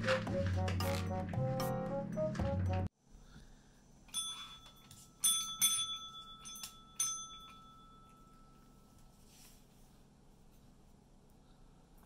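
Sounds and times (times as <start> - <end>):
desk call bell dinging: 4.1 - 9.0.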